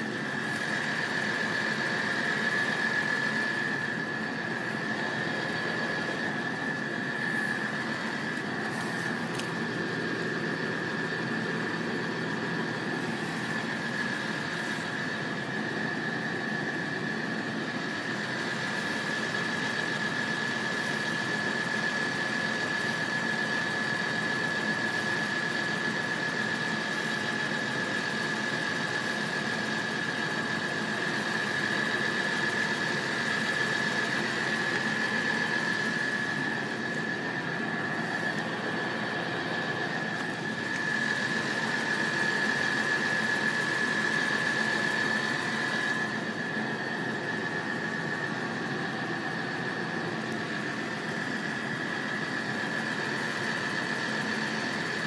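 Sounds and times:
car engine idling: 0.0 - 17.9, 33.4 - 41.9.

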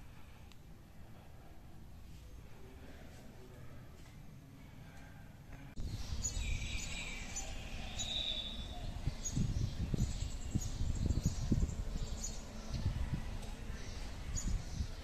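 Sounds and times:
birds chirping: 5.8 - 15.0.

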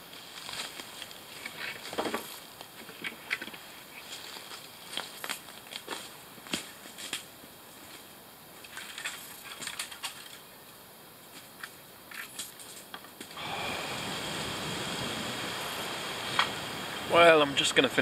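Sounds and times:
footsteps crunching through leaves: 0.0 - 2.5, 4.0 - 8.1
rushing background noise: 13.4 - 18.0.

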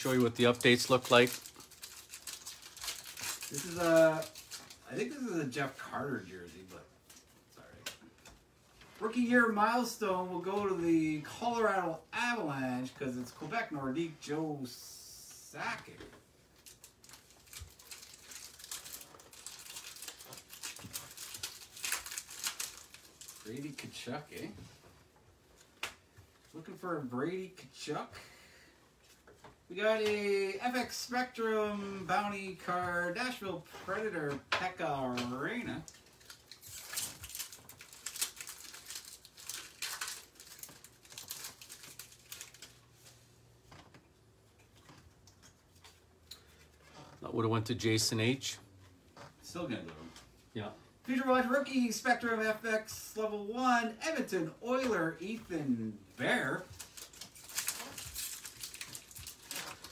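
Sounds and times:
cards rustling and clicking: 0.0 - 4.9, 16.2 - 24.5, 34.7 - 44.0, 56.2 - 59.9
foil wrapper crinkling: 0.0 - 5.6, 16.5 - 24.5, 35.0 - 43.3, 56.1 - 59.9.

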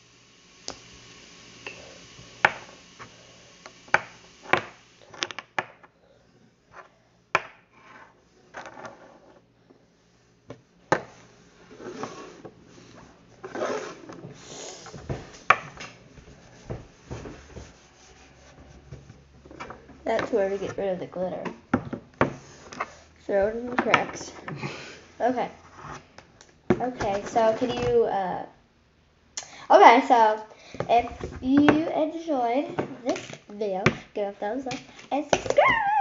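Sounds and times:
rubbing and scraping: 11.6 - 14.2, 16.1 - 19.3.

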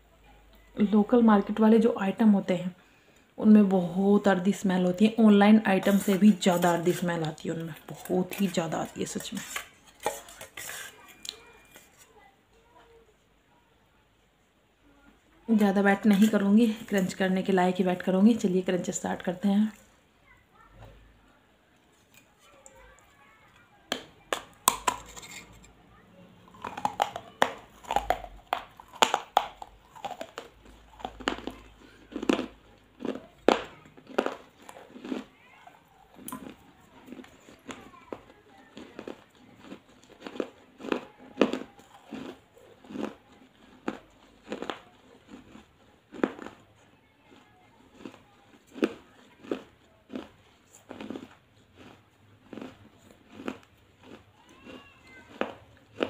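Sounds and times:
crunching clay in the mouth: 23.9 - 25.6, 26.5 - 35.3, 36.1 - 46.6, 48.0 - 56.0
clay bowl crunched in mouth: 24.4 - 25.7, 26.5 - 35.3.

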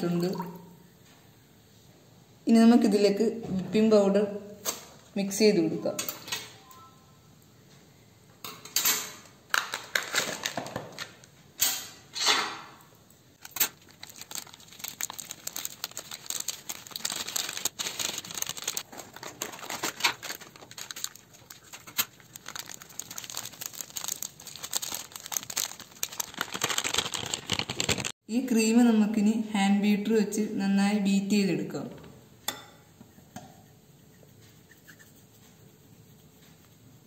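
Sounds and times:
foil sachet crinkling: 9.5 - 10.6, 13.4 - 28.2
packaging tearing: 9.6 - 10.6, 13.4 - 28.2.

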